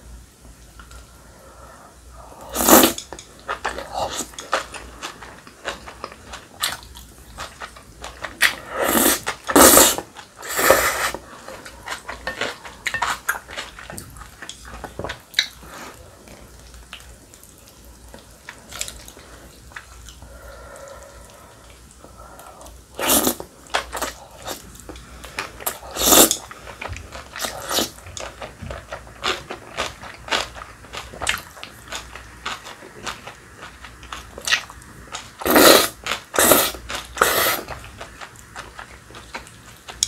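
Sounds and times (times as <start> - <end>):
slurping noodles: 2.4 - 3.0, 8.5 - 12.1, 35.4 - 37.7.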